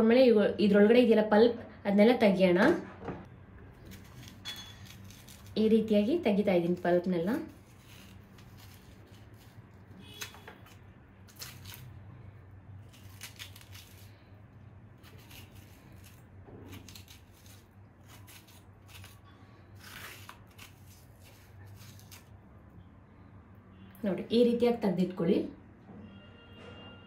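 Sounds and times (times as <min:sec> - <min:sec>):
spoon scraping zucchini flesh: 0:07.4 - 0:12.0, 0:12.8 - 0:14.2, 0:14.9 - 0:19.2, 0:19.8 - 0:22.3.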